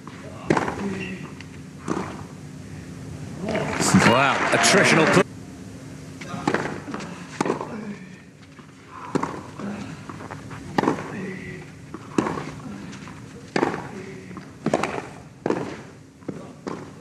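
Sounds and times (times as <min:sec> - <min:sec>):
tennis racquet hitting ball: 0:00.4 - 0:02.3, 0:06.4 - 0:07.8, 0:09.1 - 0:09.6, 0:10.7 - 0:11.3, 0:11.9 - 0:12.6, 0:13.5 - 0:17.0.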